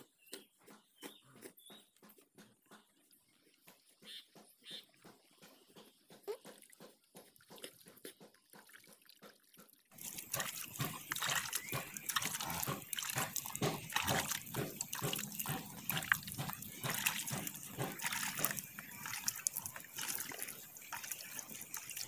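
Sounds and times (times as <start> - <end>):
milk squirting into a vessel: 10.0 - 22.0.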